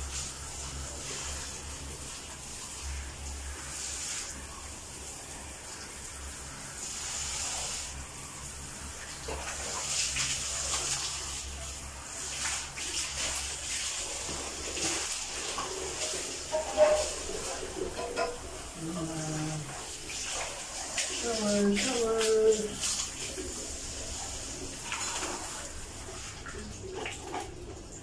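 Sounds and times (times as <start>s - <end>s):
shower head spraying water: 0.0s - 28.0s.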